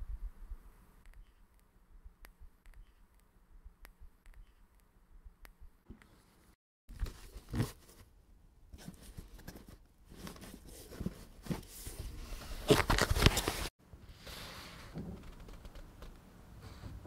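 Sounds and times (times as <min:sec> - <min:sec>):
handling rustles: 0:08.8 - 0:13.7.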